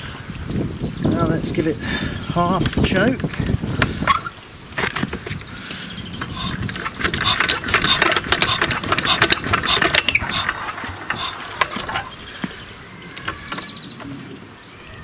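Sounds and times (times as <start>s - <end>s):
engine hand crank clatter: 6.2s - 12.4s, 13.2s - 13.7s.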